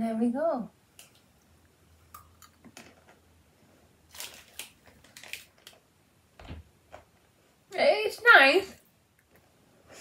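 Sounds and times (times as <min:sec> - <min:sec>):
pretzel stick crunching: 0:04.1 - 0:05.8.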